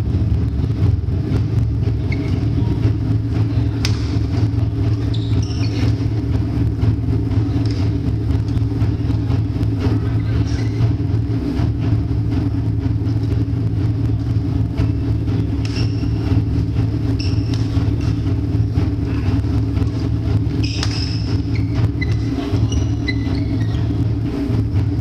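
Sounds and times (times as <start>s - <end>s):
low room rumble: 0.0s - 25.0s
rackets hitting shuttlecock: 3.7s - 6.2s, 7.4s - 8.8s, 14.9s - 23.2s
shoes squeaking on wooden floor: 4.8s - 6.1s, 19.9s - 24.0s.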